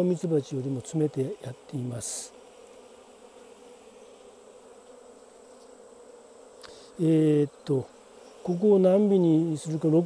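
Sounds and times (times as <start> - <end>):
bees buzzing: 0.0 - 10.0.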